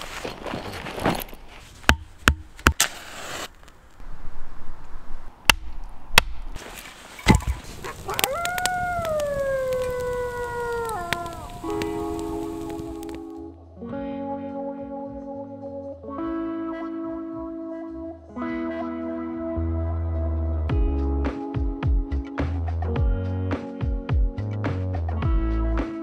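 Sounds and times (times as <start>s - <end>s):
firewood being split with a knife: 0.0s - 4.0s, 5.5s - 13.3s
wolf howl: 7.8s - 13.3s.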